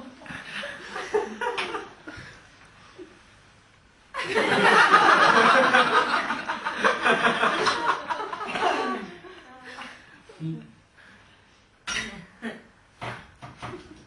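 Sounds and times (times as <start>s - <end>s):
audience laughter: 4.2s - 9.9s.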